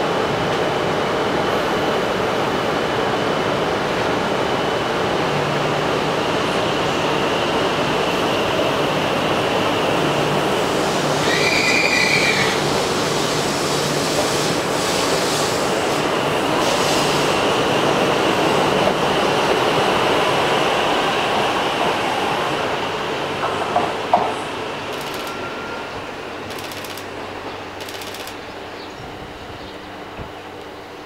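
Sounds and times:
high train whine: 0.0 - 31.0
train wheels rumbling: 6.0 - 29.2
short high-pitched squeal: 11.2 - 12.6.

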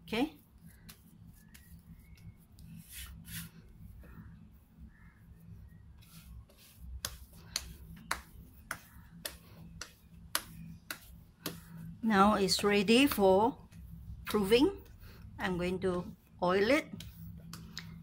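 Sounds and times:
hands slapping dough: 0.6 - 3.5, 5.9 - 15.0, 15.8 - 18.0.

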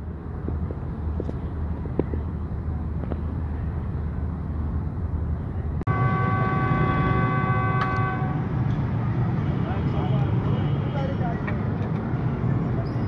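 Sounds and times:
low rumble of engines: 0.0 - 13.0
horn sounding held chord: 5.9 - 8.5.

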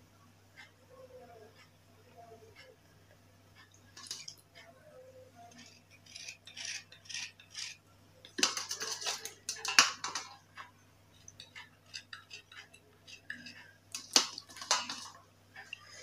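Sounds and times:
knife scraping slate pencils: 5.4 - 10.4, 11.4 - 15.1.

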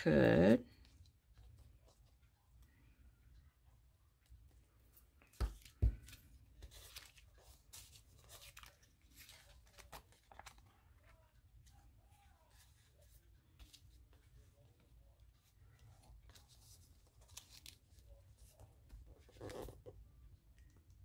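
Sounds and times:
faint clicks of paper handling: 4.2 - 19.7
paper rustling and tearing: 5.6 - 11.2, 15.8 - 18.6.

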